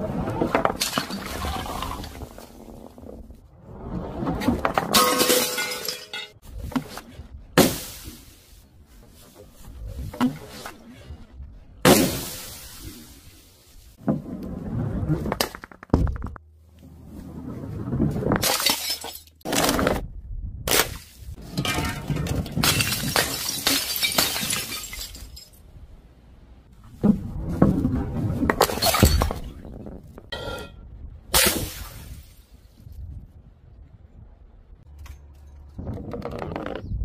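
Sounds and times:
ball rolling down wooden ramp: 0:00.0 - 0:05.4, 0:13.9 - 0:18.4, 0:26.8 - 0:30.3
glass jars smashing: 0:04.9 - 0:06.4, 0:18.4 - 0:19.4, 0:21.5 - 0:25.6.

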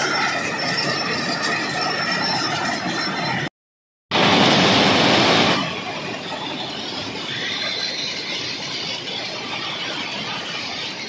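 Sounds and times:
thin high squeal: 0:00.0 - 0:03.5, 0:05.6 - 0:11.0
track machine running noise: 0:00.0 - 0:03.5, 0:04.1 - 0:11.0.

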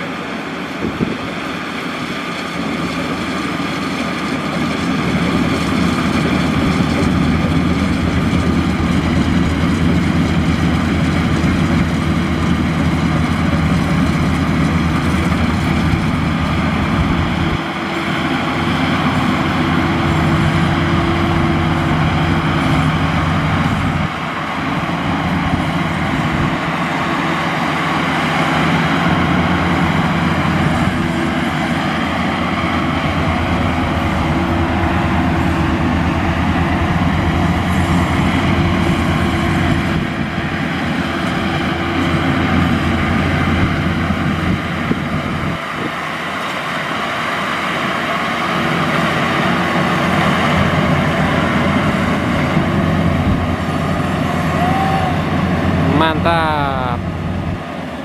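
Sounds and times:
combine harvester engine hum: 0:00.0 - 0:58.0
machinery rattling: 0:01.9 - 0:45.6.

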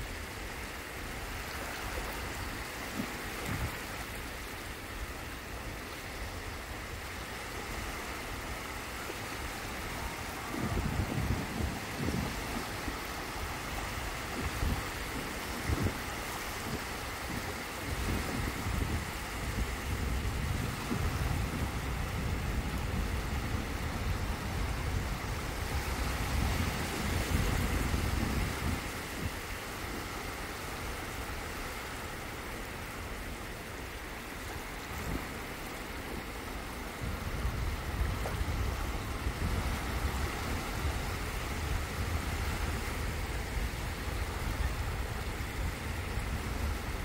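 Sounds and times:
small waves lapping: 0:00.0 - 0:47.0
wind buffeting microphone: 0:00.0 - 0:47.0.

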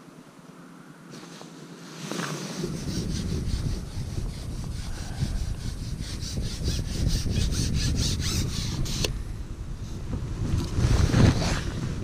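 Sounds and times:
fishing pole rubbing rasp: 0:02.0 - 0:09.2
wind rumble on microphone: 0:02.4 - 0:12.0.

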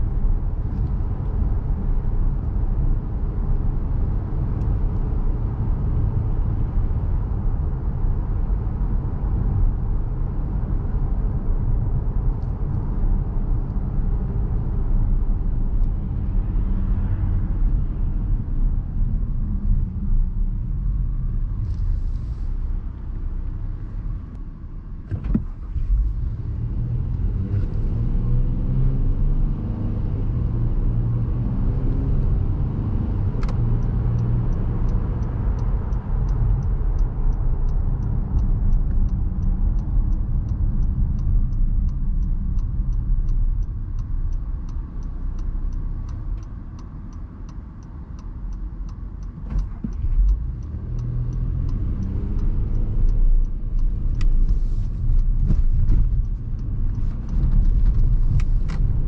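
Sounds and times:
car engine accelerating: 0:25.1 - 0:59.0
turn signal ticking: 0:25.1 - 0:59.0.

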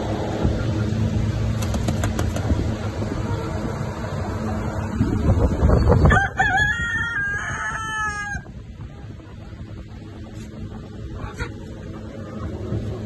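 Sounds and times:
rooster crowing: 0:06.1 - 0:08.5.

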